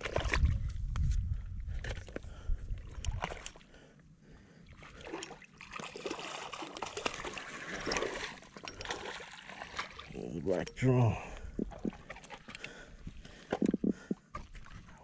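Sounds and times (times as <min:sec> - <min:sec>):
fish splashing water: 0:04.8 - 0:10.2.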